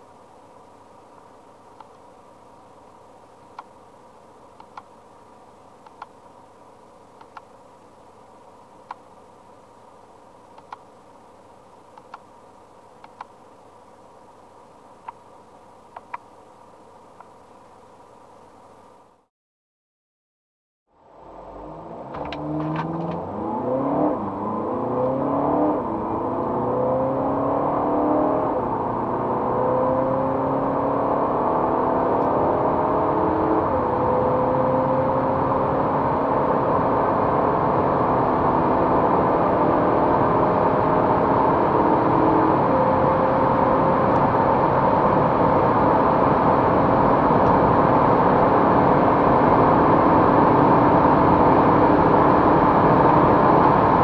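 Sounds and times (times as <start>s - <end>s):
wind and tyre noise: 20.9s - 54.0s
diesel engine accelerating: 21.2s - 54.0s.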